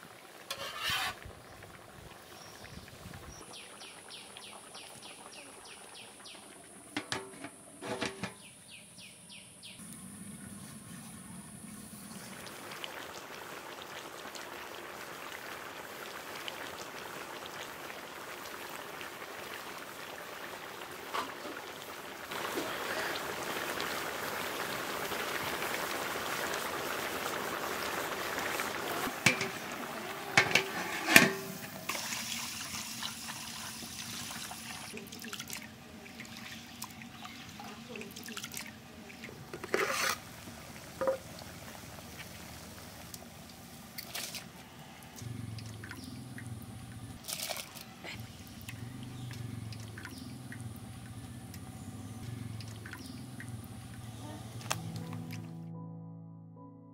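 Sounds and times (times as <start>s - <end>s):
water splashing onto rice: 47.2s - 48.0s.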